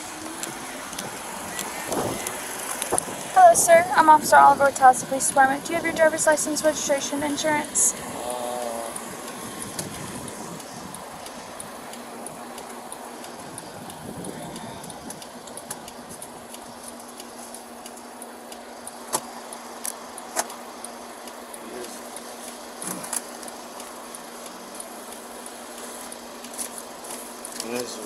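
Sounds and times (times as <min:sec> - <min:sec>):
steady hum and hiss: 0:00.0 - 0:28.0
sharp clicks and knocks: 0:09.3 - 0:20.6.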